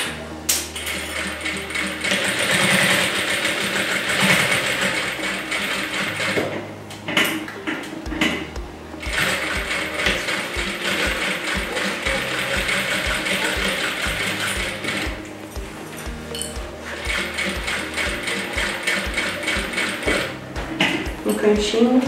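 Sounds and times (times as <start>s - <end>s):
background music: 0.0s - 22.0s
sewing machine stitching: 0.8s - 7.4s, 9.0s - 15.2s, 16.8s - 21.4s.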